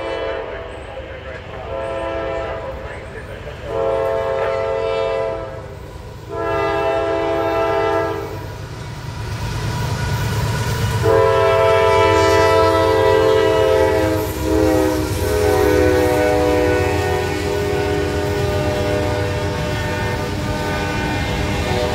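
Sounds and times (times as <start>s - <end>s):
locomotive air horn blasts: 0.0s - 0.6s, 1.7s - 2.7s, 3.7s - 5.7s, 6.3s - 8.4s, 11.0s - 21.9s
diesel locomotive rumble: 0.0s - 21.9s.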